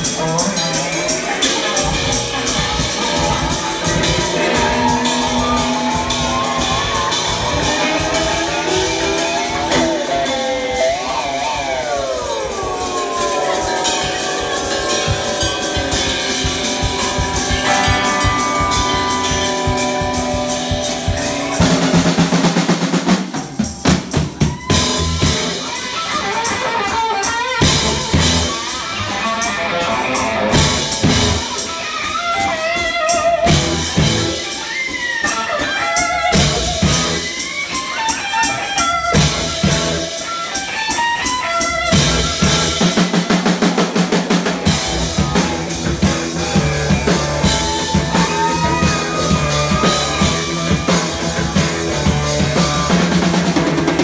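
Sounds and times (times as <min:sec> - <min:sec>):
electric guitar lead: 0:00.0 - 0:54.0
live rock band playing: 0:00.0 - 0:54.0.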